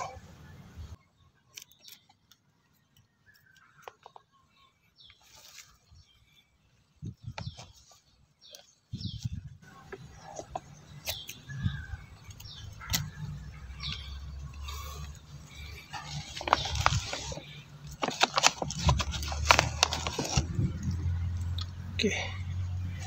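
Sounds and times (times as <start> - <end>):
scissors snipping leaves: 10.9 - 14.9.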